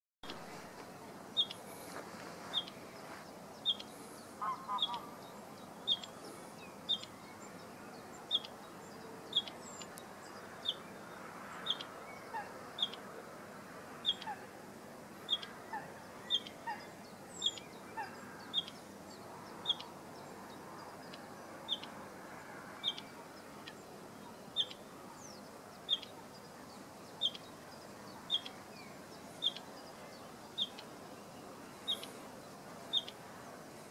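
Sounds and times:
bird calling high note: 3.7s - 5.2s.

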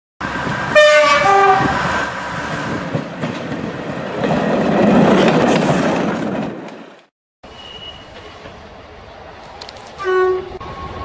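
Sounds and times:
train rumble: 0.2s - 7.1s, 7.9s - 11.0s
train horn notes: 0.7s - 1.8s, 10.0s - 10.6s.

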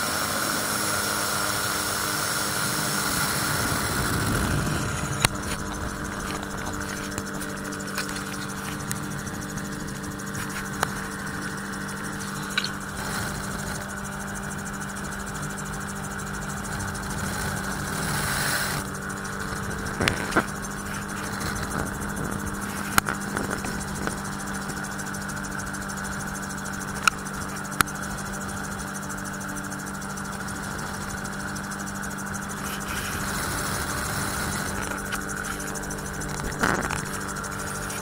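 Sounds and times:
aircraft engine and propeller drone: 0.0s - 38.0s
rushing air noise: 2.3s - 14.0s
sharp clicks: 4.0s - 13.3s.

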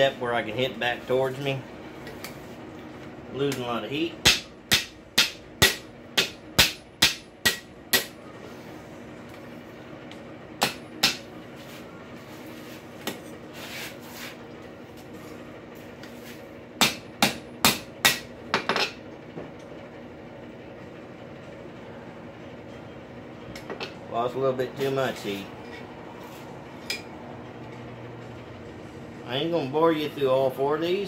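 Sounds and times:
hammer striking metal on anvil: 4.2s - 8.2s, 16.8s - 19.0s.

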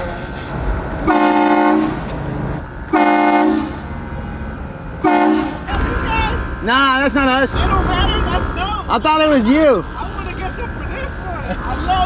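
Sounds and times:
air train horn blasts: 1.0s - 2.0s, 2.9s - 3.8s, 5.0s - 5.7s.

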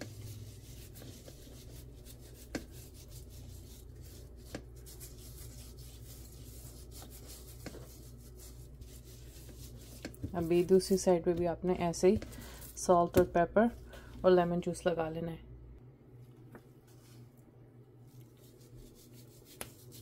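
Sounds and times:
glove rubbing wet meat: 0.0s - 11.0s, 18.1s - 20.0s.

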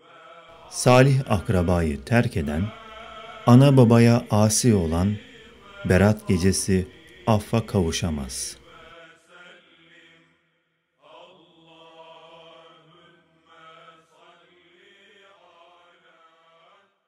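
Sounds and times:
faint vocal chant: 0.0s - 10.4s, 11.0s - 17.0s.

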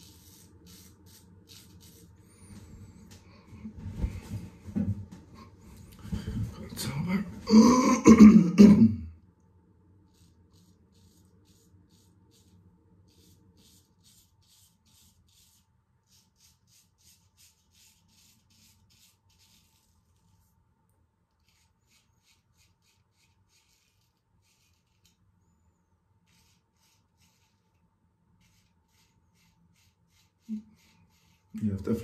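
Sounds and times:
straight razor scraping stubble: 21.4s - 25.2s.

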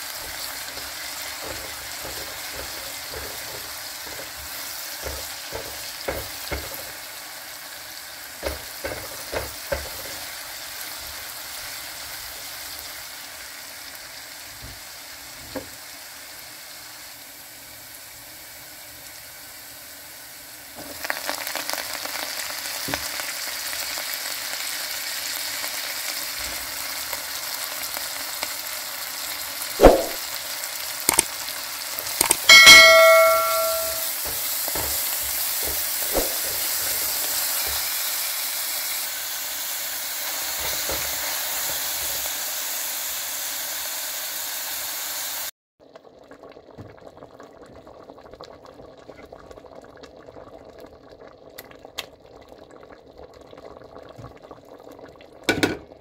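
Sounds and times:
soup bubbling at the boil: 0.0s - 32.3s, 45.8s - 56.0s
food sizzling in oil: 0.0s - 45.5s
knocks against a pot: 1.4s - 6.9s, 8.4s - 10.2s, 29.8s - 30.2s, 32.5s - 37.0s, 55.5s - 55.9s
metallic ring: 32.2s - 34.2s.

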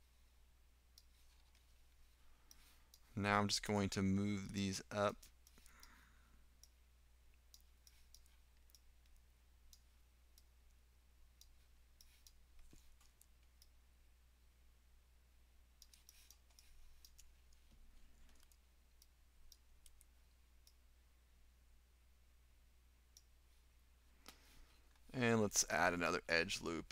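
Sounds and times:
low steady hum: 0.0s - 26.9s
computer mouse clicking: 5.2s - 6.0s, 7.4s - 10.5s, 15.8s - 17.6s, 18.2s - 20.8s.

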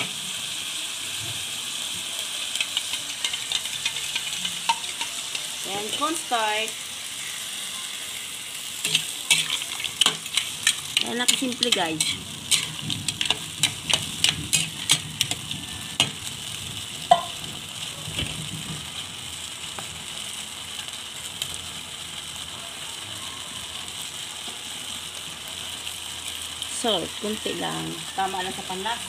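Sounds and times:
pan sizzling: 0.0s - 29.0s
spatula clicks against pan: 2.5s - 5.1s
spatula scraping metal wok: 2.5s - 6.3s, 8.8s - 16.3s
sharp knock on pan: 17.1s - 17.4s.

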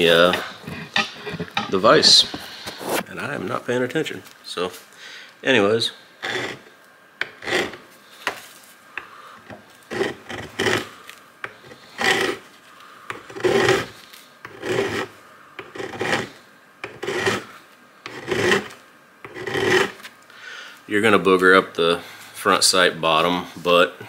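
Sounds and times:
file rasping on steel: 6.2s - 7.8s, 9.9s - 10.9s, 11.6s - 12.4s, 13.1s - 13.9s, 14.5s - 20.0s.

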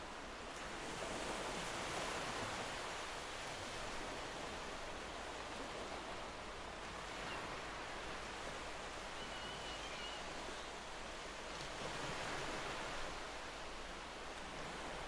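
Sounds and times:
faint high chirp: 9.1s - 10.7s.

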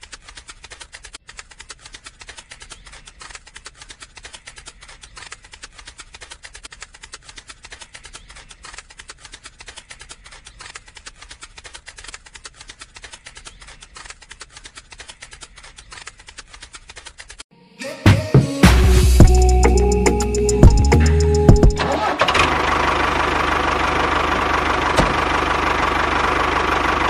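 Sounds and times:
rapid clicking: 0.0s - 17.4s.

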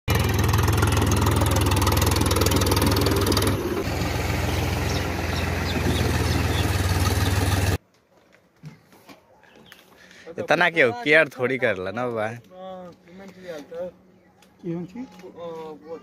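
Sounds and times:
tractor diesel engine chugging: 0.1s - 7.8s.

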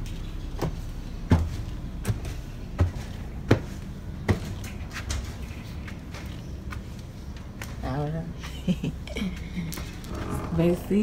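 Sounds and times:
footsteps: 0.0s - 8.6s.

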